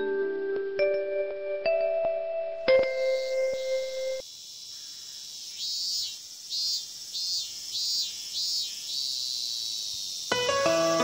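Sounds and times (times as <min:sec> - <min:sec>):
insect trills: 0:02.7 - 0:11.0
insects chirping: 0:02.7 - 0:11.0.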